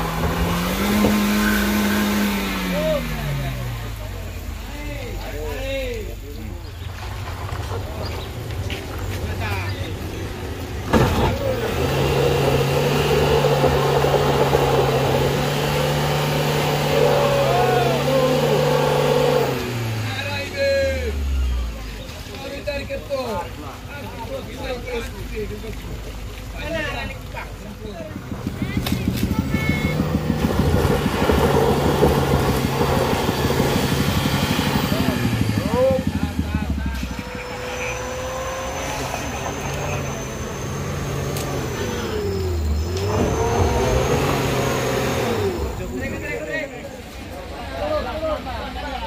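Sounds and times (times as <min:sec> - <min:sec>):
engine at high revs: 0:00.0 - 0:05.9, 0:09.9 - 0:22.0, 0:27.6 - 0:47.4
tyres scrabbling on gravel: 0:06.4 - 0:17.2, 0:22.0 - 0:37.3
tyre spinning in mud: 0:28.2 - 0:36.3.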